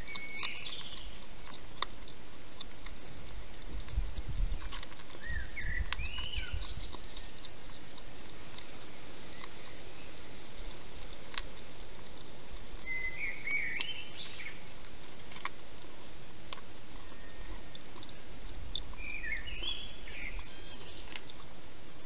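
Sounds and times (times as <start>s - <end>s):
songbird warbling: 0.0s - 1.3s, 5.1s - 10.8s, 12.8s - 14.7s, 17.0s - 18.2s, 18.8s - 21.2s
hedgehog chewing clicks: 0.0s - 9.8s, 10.5s - 21.6s.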